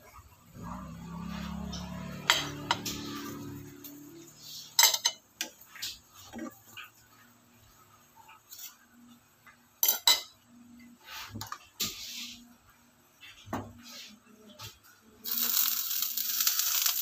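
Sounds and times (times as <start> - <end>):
utensils clinking on pan: 4.7 - 5.2, 9.8 - 10.3.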